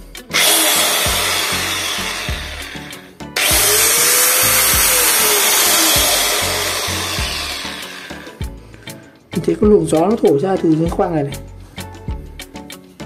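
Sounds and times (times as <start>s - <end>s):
angle grinder whirring: 0.3s - 8.4s.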